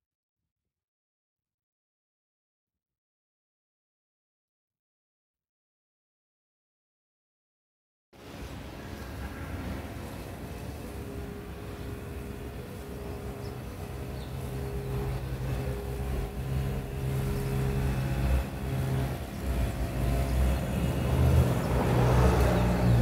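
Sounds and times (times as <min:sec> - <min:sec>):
motor engine humming: 0:08.4 - 0:23.0.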